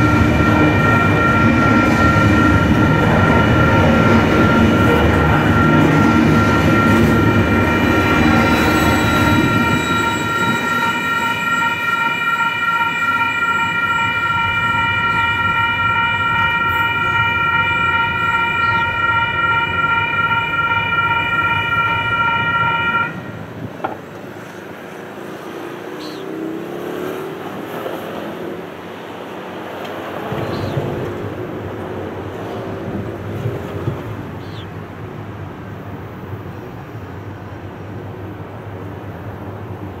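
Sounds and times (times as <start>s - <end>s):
locomotive air horn blast: 0.0s - 23.4s
passing train rumble: 0.0s - 40.0s.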